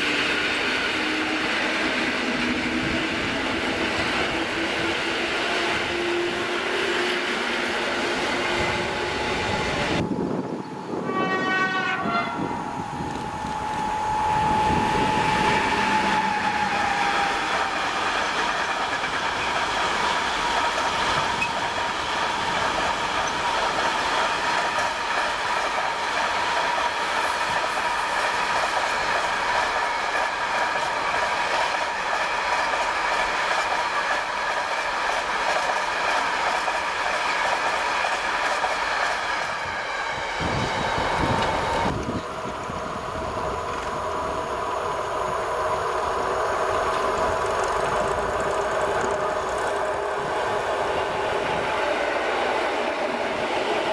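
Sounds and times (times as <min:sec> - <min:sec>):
freight train wheels rumbling: 0:00.0 - 0:53.9
locomotive horn blast: 0:10.9 - 0:16.8.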